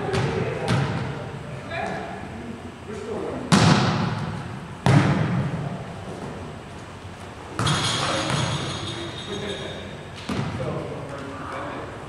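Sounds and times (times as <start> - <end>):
volleyball being struck: 3.5 - 5.6, 7.6 - 8.6.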